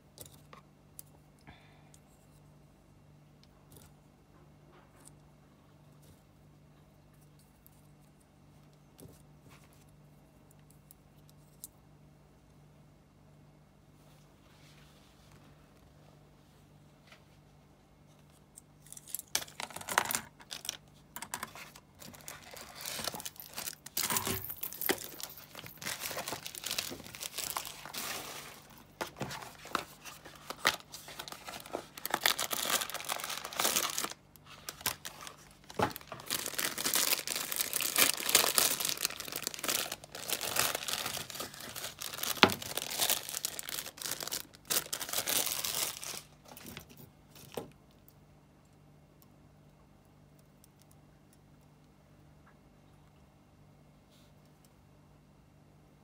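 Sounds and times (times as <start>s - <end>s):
plastic bags crinkling and tearing: 19.4s - 47.5s.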